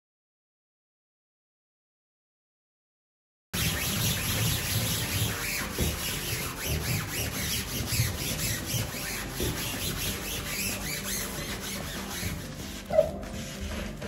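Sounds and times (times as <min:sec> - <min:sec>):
sponge scrubbing steel sink: 0:03.6 - 0:14.0.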